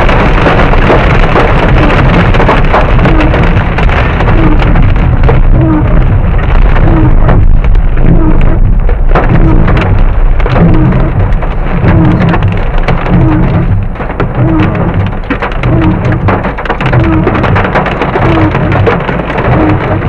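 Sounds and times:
deep rumble: 0:00.0 - 0:20.0
hail pelting car roof: 0:00.0 - 0:20.0.

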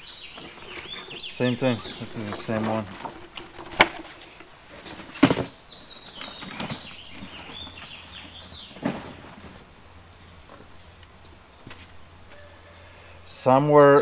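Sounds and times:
plastic sleeves rustling: 0:00.2 - 0:09.7.

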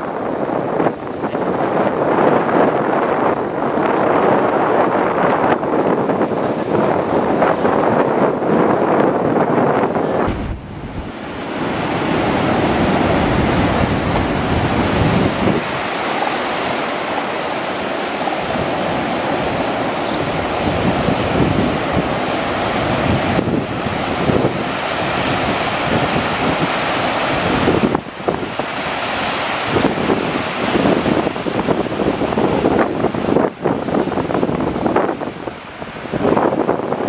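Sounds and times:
surf breaking on rocks: 0:10.2 - 0:37.0.

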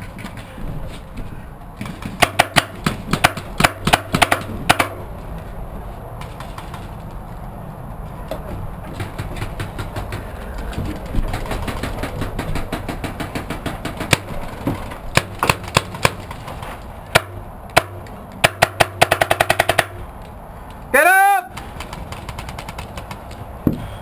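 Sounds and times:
paintball markers firing: 0:01.8 - 0:05.0, 0:11.2 - 0:16.4, 0:17.1 - 0:20.0, 0:21.5 - 0:23.4.

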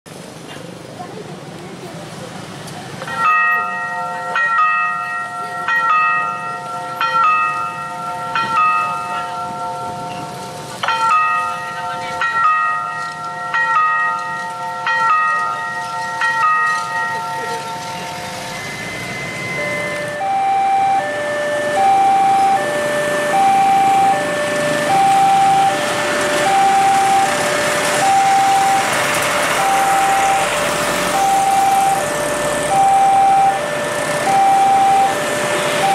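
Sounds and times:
electronic bell chime: 0:14.8 - 0:21.1, 0:21.8 - 0:22.6, 0:24.9 - 0:25.8, 0:26.5 - 0:27.4, 0:28.0 - 0:28.9, 0:29.6 - 0:32.1, 0:32.7 - 0:33.6, 0:34.3 - 0:35.2
two-tone siren: 0:16.6 - 0:35.9
rushing noise: 0:17.6 - 0:35.9.

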